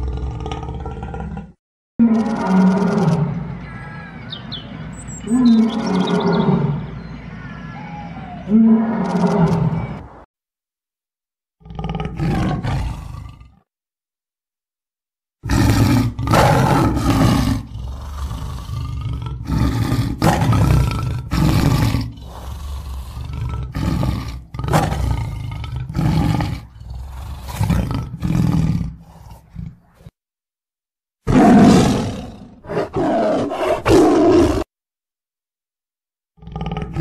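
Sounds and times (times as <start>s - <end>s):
tiger roaring and growling: 0.0s - 4.2s, 5.2s - 6.9s, 7.6s - 10.1s, 11.6s - 13.6s, 15.4s - 30.2s, 31.3s - 34.7s, 36.4s - 37.0s.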